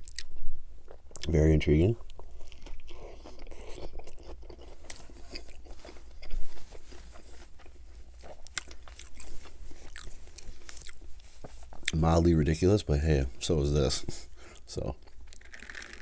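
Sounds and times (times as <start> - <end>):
close-miked chewing: 0.0 - 12.0.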